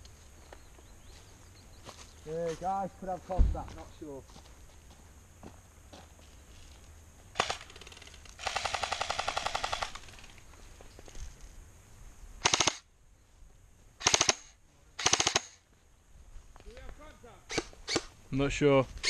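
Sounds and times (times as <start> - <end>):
airsoft guns firing: 7.4 - 7.8, 8.4 - 10.1, 12.4 - 12.8, 14.0 - 15.6.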